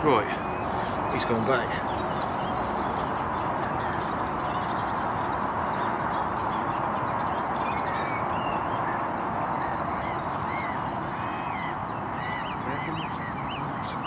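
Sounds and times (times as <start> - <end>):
birds trilling and whistling: 0.0 - 14.0.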